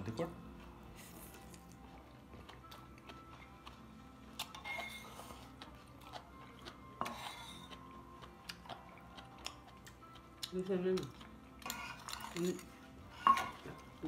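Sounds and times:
metal ladle clinking on pot: 13.2 - 13.6.

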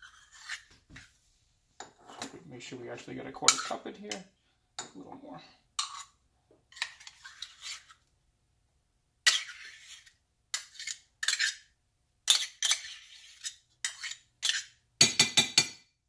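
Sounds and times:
metal spoon scraping metal cup: 0.0 - 0.7, 5.8 - 8.0, 9.3 - 11.7, 12.3 - 14.8.

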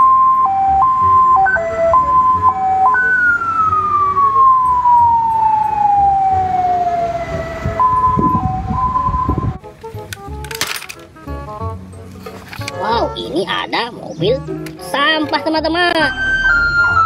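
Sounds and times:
ambulance siren wailing: 0.0 - 9.6, 15.9 - 17.0
stepped musical notes: 0.0 - 17.0.

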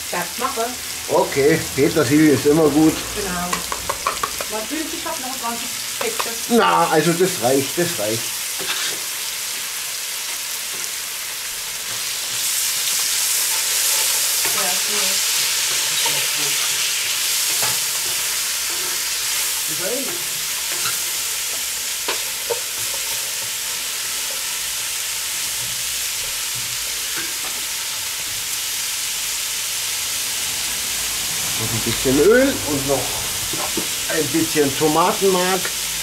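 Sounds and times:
vegetables sizzling in pot: 0.0 - 36.0.

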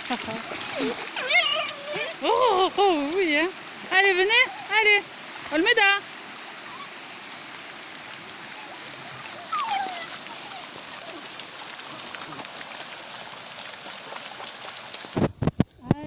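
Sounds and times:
puppies splashing through water: 0.0 - 15.6
stream running over stones: 0.0 - 16.0
puppy whining: 0.7 - 2.2, 6.6 - 7.0, 8.5 - 11.4.

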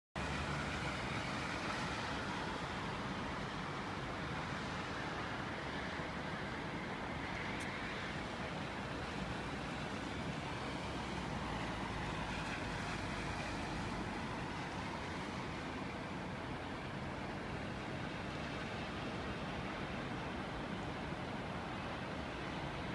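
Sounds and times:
distant city traffic hum: 0.2 - 22.9.

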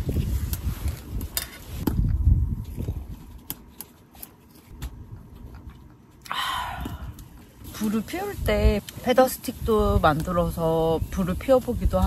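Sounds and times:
breathy exhaled sigh: 6.2 - 7.2.

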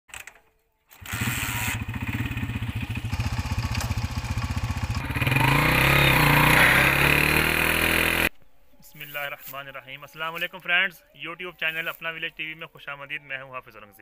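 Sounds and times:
motorcycle engine running: 1.0 - 8.3.

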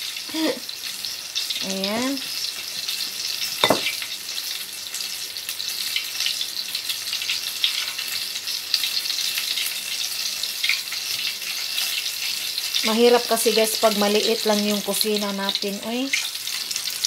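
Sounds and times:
chicken frying in oil: 0.0 - 17.0
sharp knock: 3.6 - 3.9.

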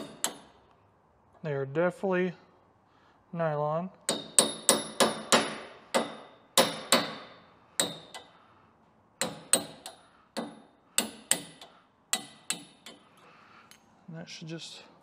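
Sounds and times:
hammer striking metal: 0.0 - 0.5, 4.1 - 8.4, 9.2 - 13.0.

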